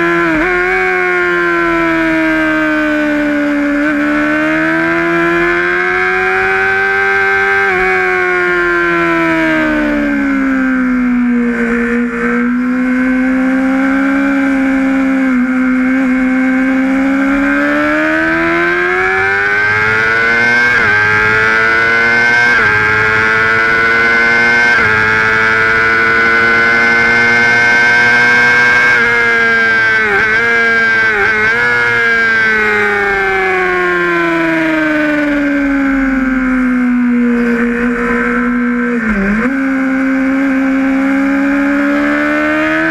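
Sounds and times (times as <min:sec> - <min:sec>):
motorcycle engine at high revs: 0:00.0 - 0:42.9.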